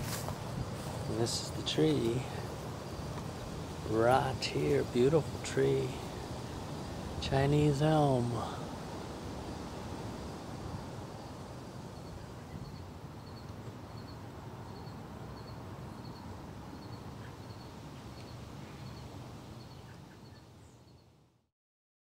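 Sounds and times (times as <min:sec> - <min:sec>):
low outdoor rumble: 0:00.0 - 0:15.3.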